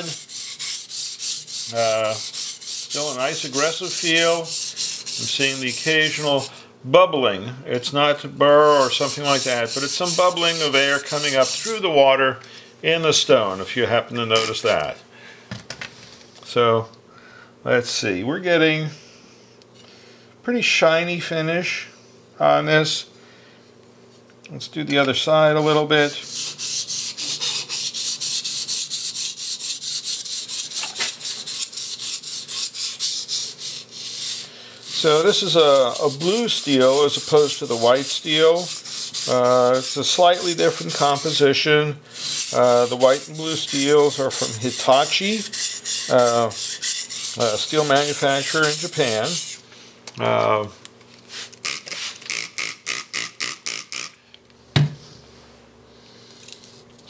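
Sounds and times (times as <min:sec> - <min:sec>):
knife scraping on whetstone: 0:00.0 - 0:06.5, 0:08.7 - 0:11.8, 0:26.1 - 0:41.4, 0:42.2 - 0:49.6.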